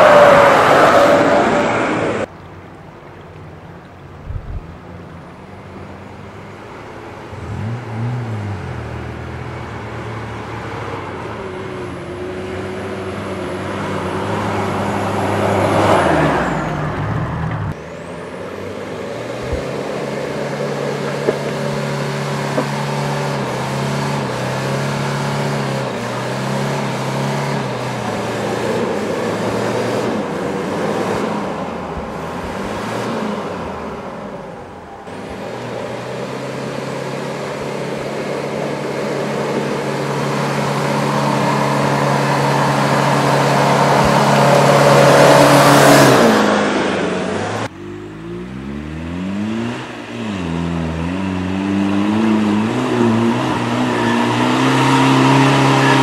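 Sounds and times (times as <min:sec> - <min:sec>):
off-road vehicle engines labouring: 0:00.0 - 0:56.0
engine revving: 0:07.3 - 0:56.0
vehicle passing close: 0:18.9 - 0:56.0.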